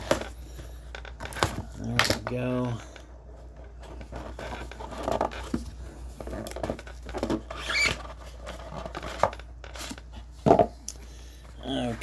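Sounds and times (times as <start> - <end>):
cardboard scraping cardboard: 3.7 - 10.3
squeaky scrape: 7.4 - 8.3.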